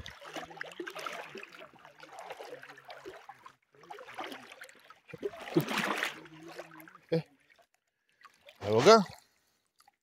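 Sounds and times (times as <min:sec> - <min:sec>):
flowing river water: 0:00.0 - 0:10.0
man talking: 0:08.6 - 0:09.2.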